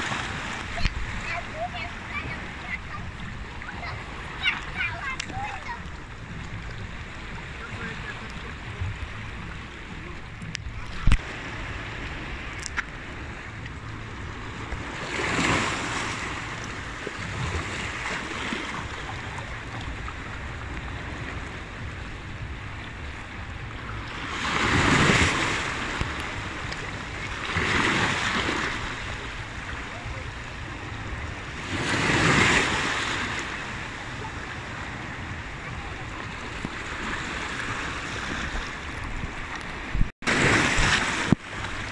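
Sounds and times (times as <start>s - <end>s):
seawater surging between rocks: 0.0s - 41.9s
surf wash: 0.0s - 41.9s
waves splashing: 0.0s - 41.9s.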